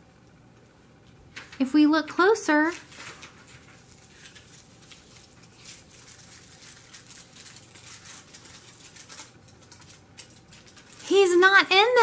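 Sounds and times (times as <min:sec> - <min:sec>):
foil crackling: 0:02.6 - 0:12.0
paper rustling: 0:02.6 - 0:12.0.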